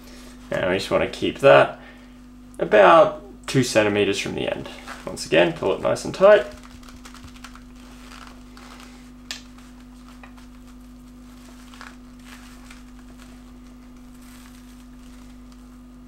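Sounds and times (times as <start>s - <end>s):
steady low hum: 0.0s - 16.0s
fabric rustling: 4.6s - 16.0s.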